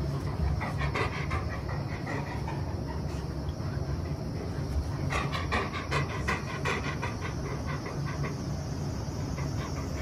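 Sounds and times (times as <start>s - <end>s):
dog panting: 0.0s - 10.0s.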